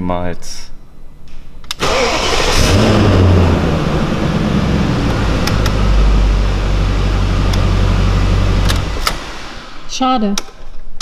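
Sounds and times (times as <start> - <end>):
car engine starting and idling: 1.8 - 10.2.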